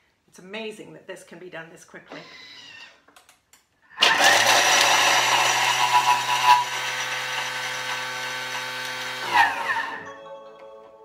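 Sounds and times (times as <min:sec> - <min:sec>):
food processor motor whine: 0:04.0 - 0:10.1.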